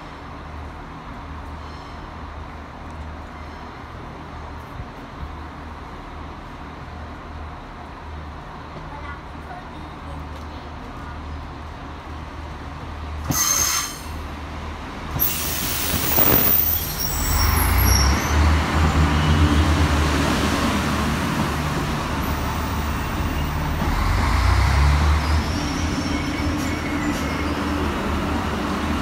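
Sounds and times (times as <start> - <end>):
diesel train engines droning: 0.0 - 29.0
wheels rumbling on rails: 0.0 - 29.0
wheel and brake squeals: 13.3 - 14.2, 15.2 - 19.7, 24.7 - 28.0.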